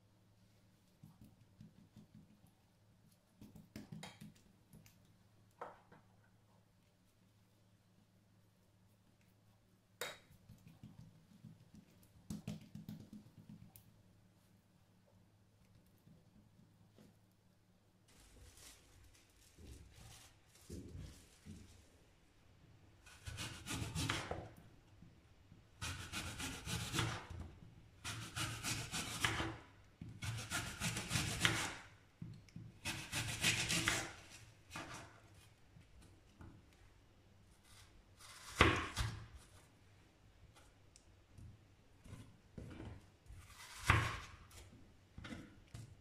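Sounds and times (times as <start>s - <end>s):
knife sawing through apple: 23.1s - 24.3s, 25.8s - 27.2s, 28.0s - 29.5s, 30.2s - 31.8s, 32.8s - 34.2s.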